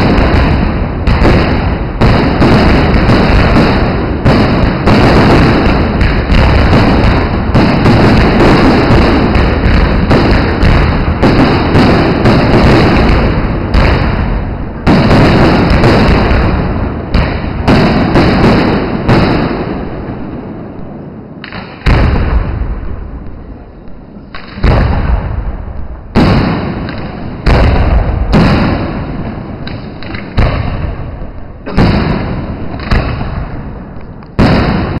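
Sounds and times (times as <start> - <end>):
firework booms echoing: 0.0 - 35.0.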